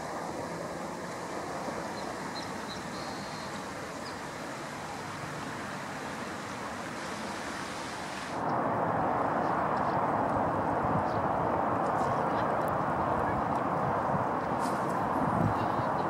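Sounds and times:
rushing outdoor background noise: 0:00.0 - 0:16.0
faint bird chirps: 0:02.0 - 0:04.2
loud hiss: 0:02.5 - 0:08.4.

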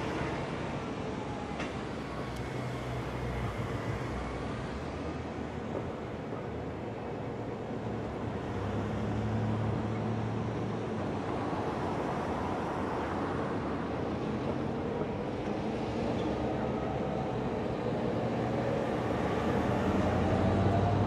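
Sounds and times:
diesel locomotive engine drone: 0:12.8 - 0:21.0.

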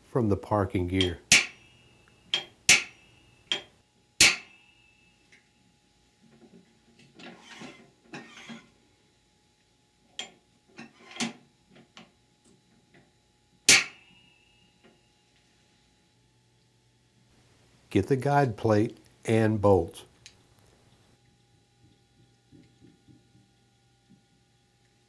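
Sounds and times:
scraping rustle of metal shaft: 0:07.1 - 0:08.8, 0:10.8 - 0:11.3.

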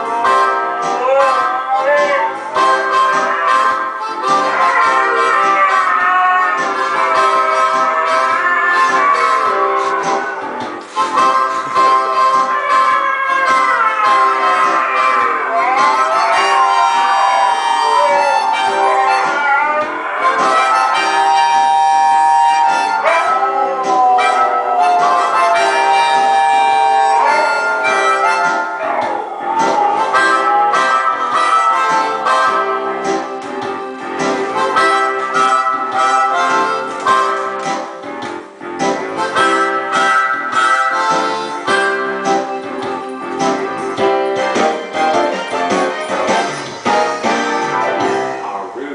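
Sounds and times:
huskies howling: 0:00.0 - 0:33.6
harmonica playing blues: 0:00.0 - 0:48.9.

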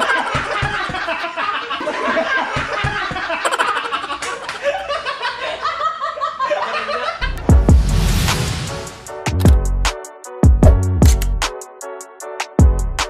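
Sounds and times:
group laughing: 0:00.0 - 0:07.5.

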